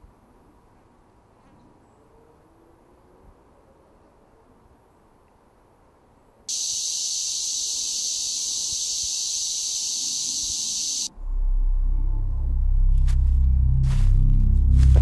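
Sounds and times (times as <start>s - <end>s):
high-pitched shriek: 6.5s - 11.1s
deep low music: 11.1s - 15.0s.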